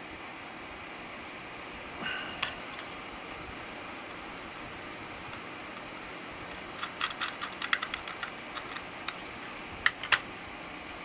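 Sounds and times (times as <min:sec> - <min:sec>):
screwdriver and screws clicking: 0:06.8 - 0:09.3.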